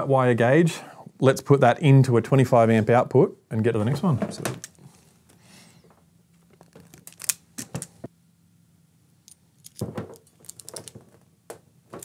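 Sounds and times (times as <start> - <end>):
crimping tool clicking and rattling: 9.3 - 11.0.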